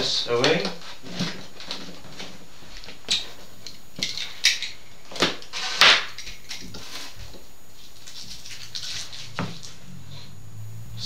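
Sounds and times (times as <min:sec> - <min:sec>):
foam packaging scraping: 0:05.4 - 0:06.1, 0:06.7 - 0:09.8.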